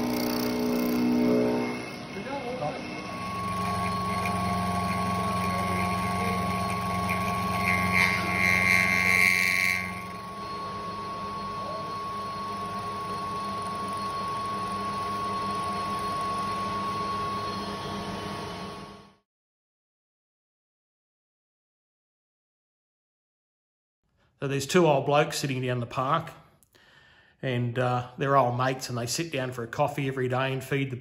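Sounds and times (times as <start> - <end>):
end mill cutting metal: 0.0 - 18.8
thin steady whine: 0.0 - 19.0.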